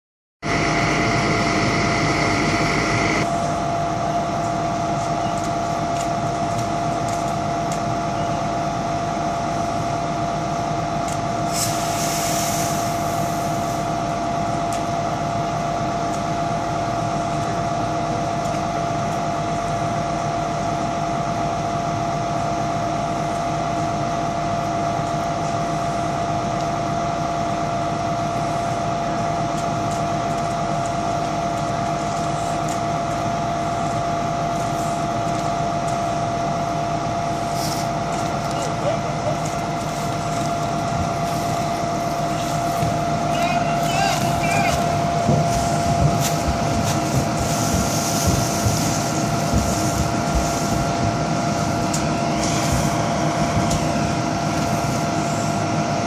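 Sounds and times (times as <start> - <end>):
engine-driven machine droning: 0.4 - 56.0
hiss: 11.4 - 14.0, 37.4 - 37.9, 45.5 - 51.8
brief high hiss: 11.5 - 13.6.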